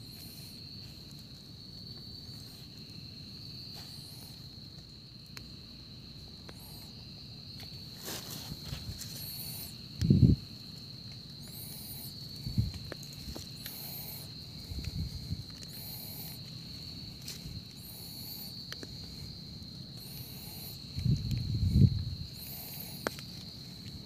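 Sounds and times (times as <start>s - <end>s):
insect chirps: 0.0s - 24.0s
insects droning: 0.0s - 24.0s.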